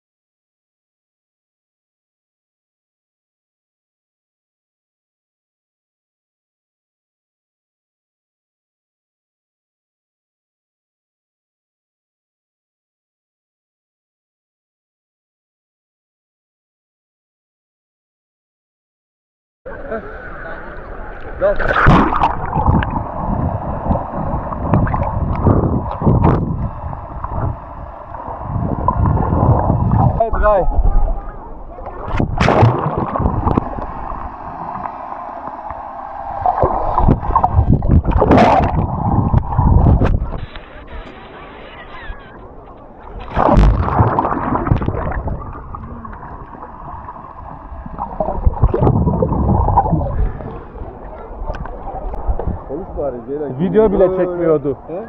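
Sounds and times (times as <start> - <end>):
muffled underwater churning: 19.7 - 55.0
water splashing: 20.6 - 41.4, 43.0 - 53.0
bubbling pops: 21.7 - 23.0, 32.1 - 33.7, 43.3 - 46.2, 48.0 - 50.0.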